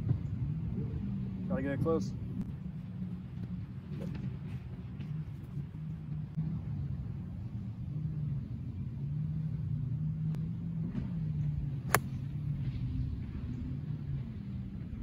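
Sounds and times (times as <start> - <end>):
steady low rumble: 2.1 - 15.0
golf club striking ball: 11.9 - 12.3.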